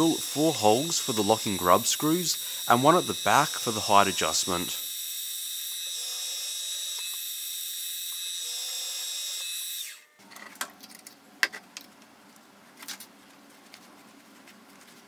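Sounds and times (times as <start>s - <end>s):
milling machine whine: 0.0s - 4.9s.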